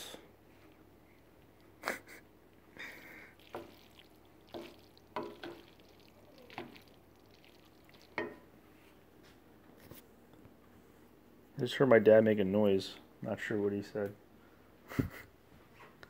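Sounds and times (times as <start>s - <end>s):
wooden spoon knocking in a pan: 3.5s - 3.9s, 4.5s - 5.8s, 8.1s - 8.5s.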